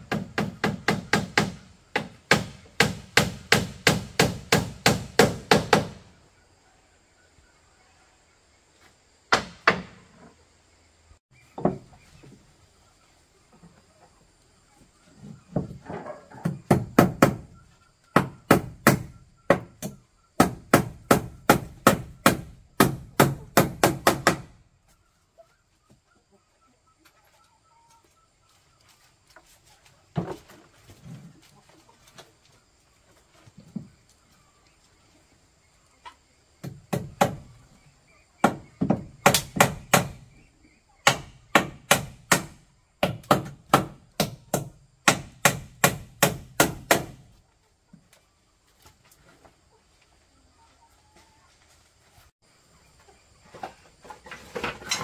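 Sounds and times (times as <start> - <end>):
hand tool striking wood: 0.0 - 6.0, 18.1 - 24.5, 38.4 - 40.2, 41.0 - 47.2.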